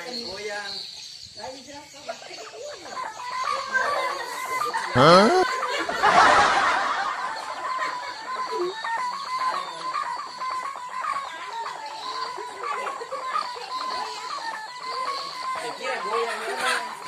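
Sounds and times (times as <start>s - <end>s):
steady high tone: 5.0s - 5.4s.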